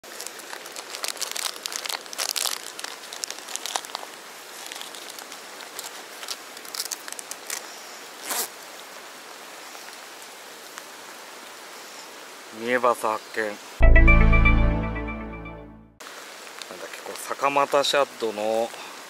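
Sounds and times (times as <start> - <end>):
plastic packet crinkling: 0.0 - 7.7
rain hiss: 3.0 - 13.8, 16.0 - 19.0.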